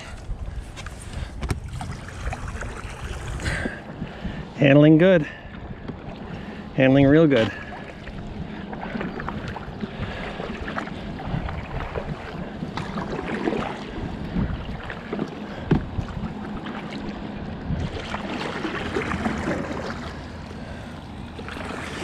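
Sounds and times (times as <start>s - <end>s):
water washing along hull: 0.0s - 22.0s
paddle splashing in water: 1.4s - 4.0s, 7.2s - 22.0s.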